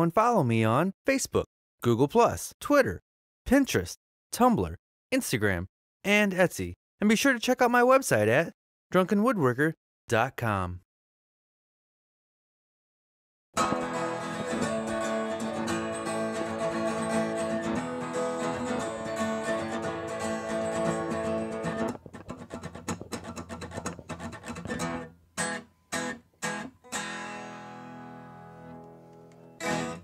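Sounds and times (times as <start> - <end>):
acoustic guitar strumming: 13.6 - 30.0
choked guitar strums: 13.6 - 30.0.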